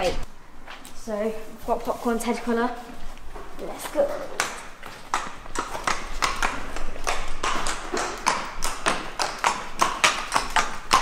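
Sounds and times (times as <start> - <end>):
hooves clip-clopping on pavement: 0.0 - 11.0.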